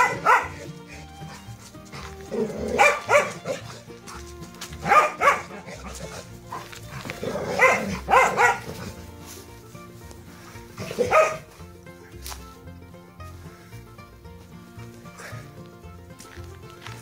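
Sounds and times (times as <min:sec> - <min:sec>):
dog barking: 0:00.0 - 0:00.8, 0:02.6 - 0:03.9, 0:04.8 - 0:08.9, 0:10.8 - 0:11.5.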